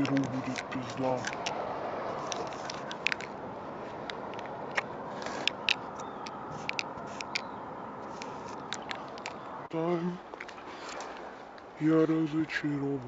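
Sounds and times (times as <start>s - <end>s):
marker tip clicking on surface: 0.0s - 1.6s, 4.0s - 7.5s
steady background noise: 0.0s - 13.0s.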